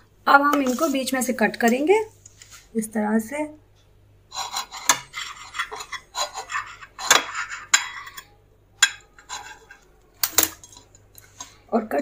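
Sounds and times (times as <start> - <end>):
knife sawing through bread: 4.3 - 7.7.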